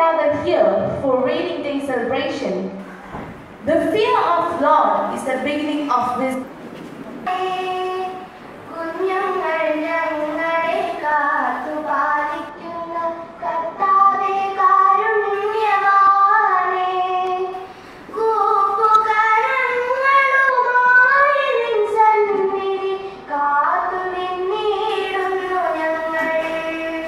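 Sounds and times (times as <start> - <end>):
girls singing together: 7.2 - 27.0.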